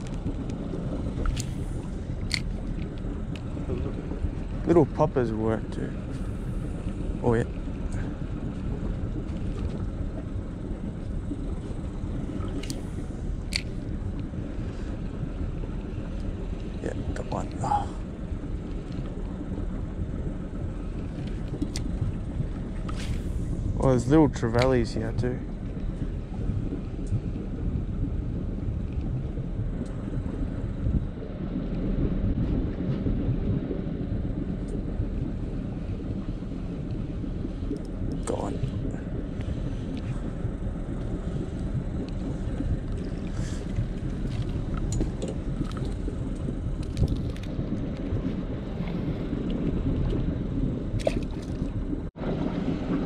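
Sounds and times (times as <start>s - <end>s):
wind rumbling on microphone: 0.0s - 53.0s
faint ticks: 27.0s - 27.4s, 29.8s - 30.0s.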